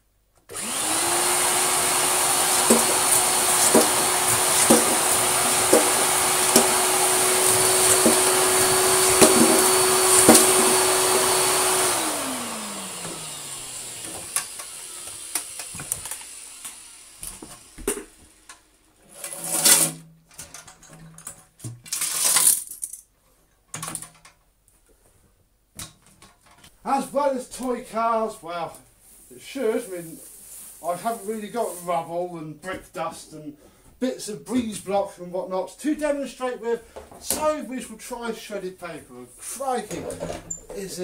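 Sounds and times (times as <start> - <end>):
vacuum cleaner whining: 0.5 - 20.0
toy cars clacking up hose: 2.5 - 6.8, 21.8 - 23.0
knocks and rustles of handling: 2.5 - 11.1, 39.8 - 40.9.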